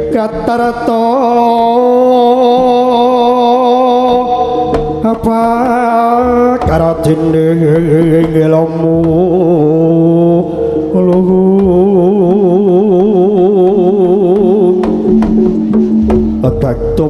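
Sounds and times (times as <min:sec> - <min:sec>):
drum strokes: 0:04.6 - 0:09.6, 0:11.0 - 0:17.0
gamelan music: 0:13.9 - 0:17.0.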